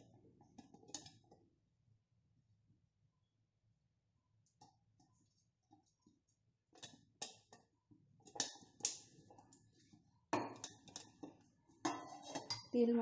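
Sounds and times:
brush scraping metal container: 11.9 - 12.6.

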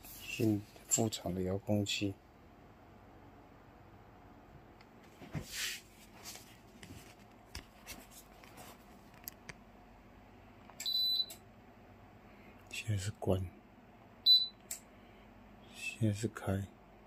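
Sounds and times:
short electronic beep: 14.3 - 14.6.

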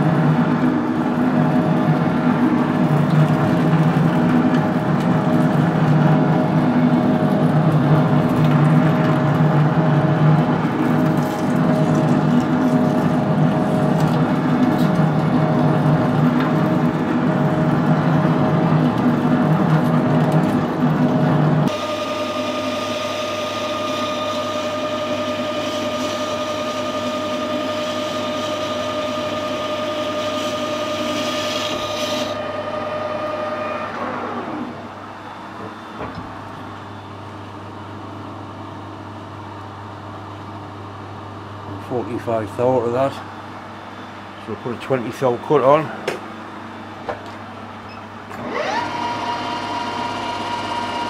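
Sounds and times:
lathe whine: 0.0 - 51.0
lathe drilling steel: 48.4 - 51.0.

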